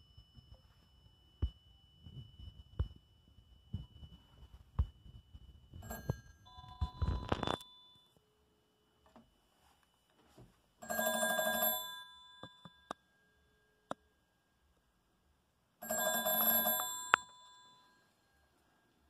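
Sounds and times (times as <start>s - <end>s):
telephone bells ringing: 5.8s - 8.2s, 10.8s - 13.6s, 15.8s - 18.6s.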